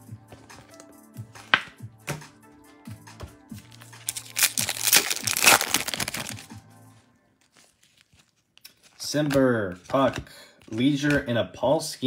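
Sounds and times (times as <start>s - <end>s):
background music with beat: 0.0s - 5.5s, 6.1s - 7.1s
foil wrapper crinkling and ripping: 4.0s - 6.5s, 7.4s - 9.0s.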